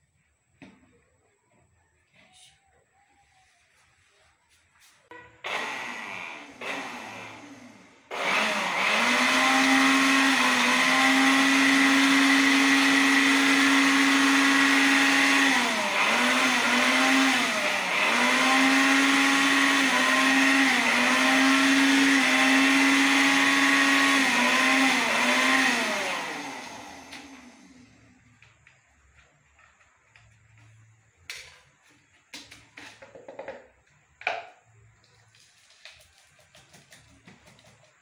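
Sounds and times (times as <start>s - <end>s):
vacuum cleaner motor whining: 5.4s - 28.6s.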